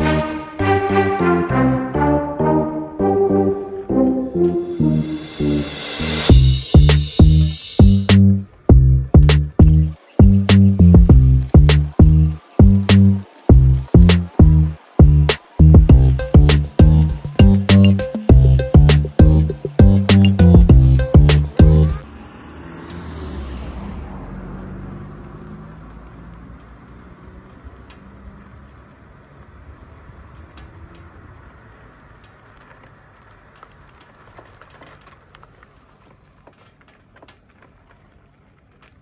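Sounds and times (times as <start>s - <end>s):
car passing: 0.0s - 34.2s
faint clicks and rattles: 31.9s - 39.0s.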